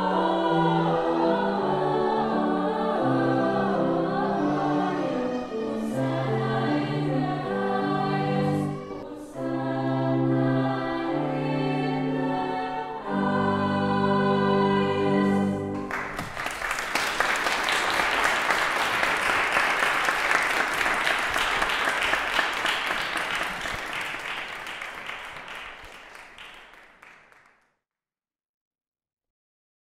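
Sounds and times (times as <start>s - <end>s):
choir singing: 0.0s - 15.9s
applause: 15.7s - 27.7s.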